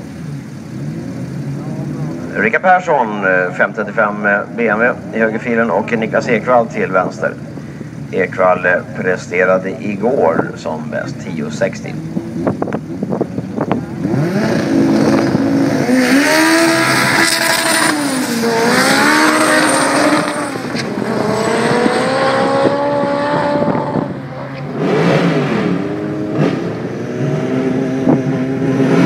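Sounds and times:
race cars accelerating hard: 0:10.9 - 0:29.0.

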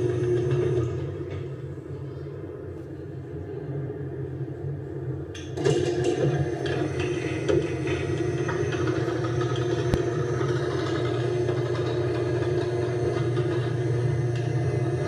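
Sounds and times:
garage door opener motor hum: 0:00.0 - 0:01.6, 0:05.4 - 0:15.0.

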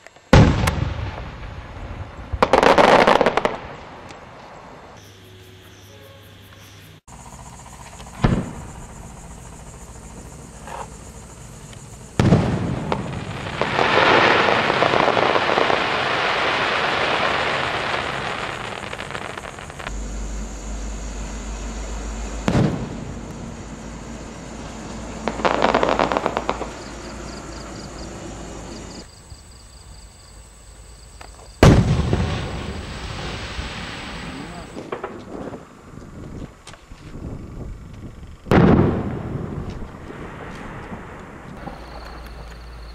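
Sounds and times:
firework crackling: 0:00.0 - 0:04.8, 0:07.1 - 0:29.1, 0:31.2 - 0:37.4, 0:38.4 - 0:42.9
firework shells bursting: 0:20.8 - 0:27.2.

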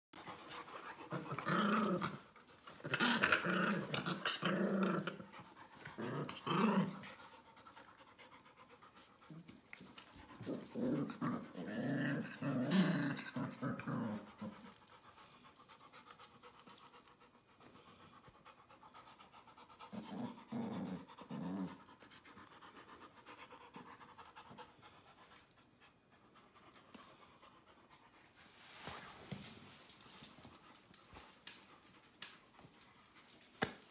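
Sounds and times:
puppies scuffling: 0:28.2 - 0:33.9.

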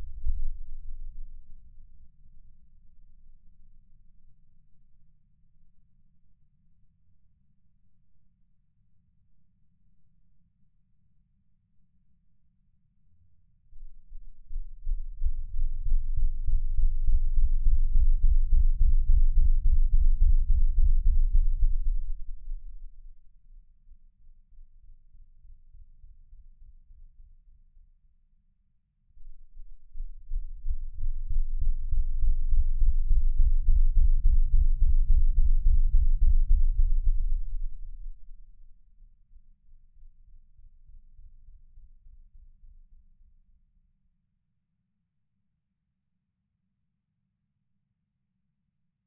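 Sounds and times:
deep wavering rumble: 0:14.2 - 0:23.2, 0:29.3 - 0:38.8.

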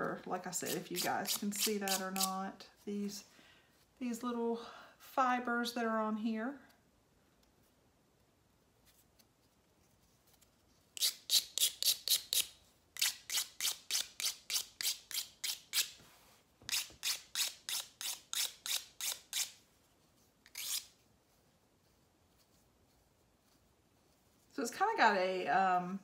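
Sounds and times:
emery board rasping clay: 0:20.5 - 0:20.9.

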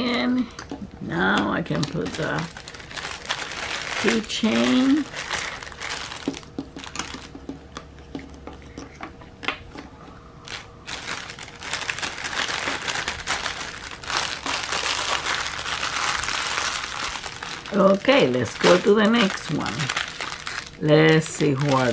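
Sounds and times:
plastic bags crinkling: 0:01.5 - 0:07.3, 0:10.4 - 0:21.9.

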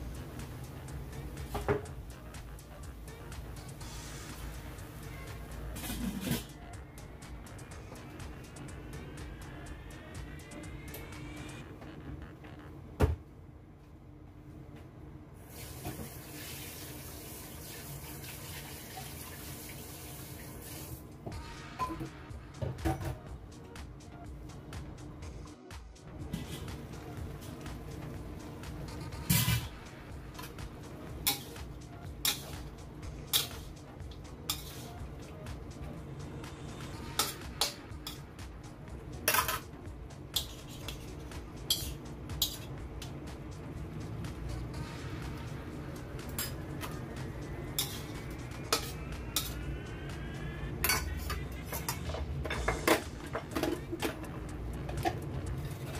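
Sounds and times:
metal spatula scraping a wok: 0:31.2 - 0:32.7, 0:33.3 - 0:33.7, 0:34.5 - 0:35.1, 0:40.4 - 0:42.7, 0:47.7 - 0:49.6.

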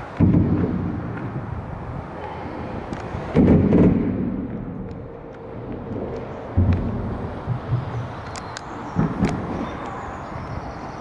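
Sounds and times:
traffic rumble overhead: 0:00.0 - 0:11.0
heavy booms from bridge: 0:00.2 - 0:01.7, 0:03.2 - 0:04.9.

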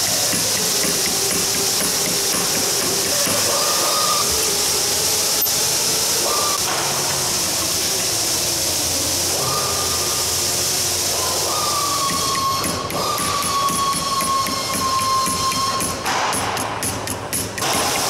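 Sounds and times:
steady hiss: 0:00.0 - 0:18.0
long held high notes: 0:06.2 - 0:16.1.

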